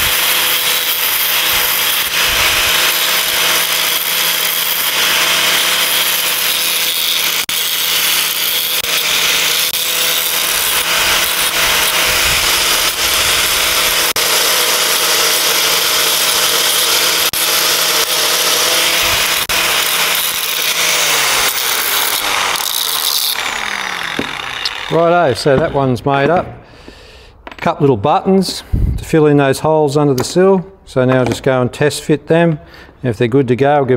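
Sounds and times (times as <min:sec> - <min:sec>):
angle grinder motor whine: 0:00.0 - 0:25.8.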